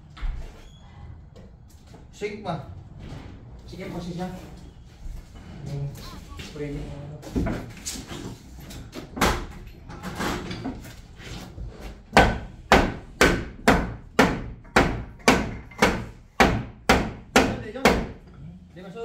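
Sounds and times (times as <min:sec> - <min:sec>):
hammer strikes: 0:12.1 - 0:18.2.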